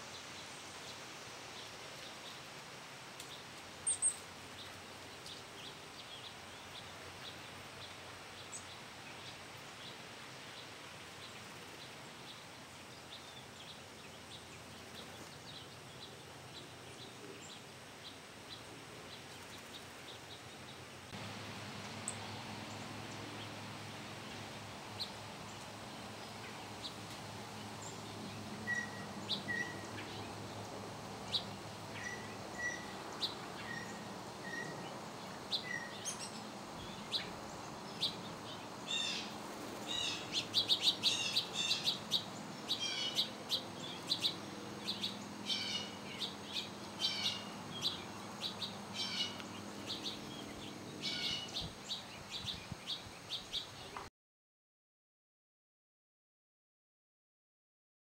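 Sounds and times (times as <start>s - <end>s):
faint steady hum: 0.0s - 54.0s
songbirds chirping: 0.0s - 54.1s.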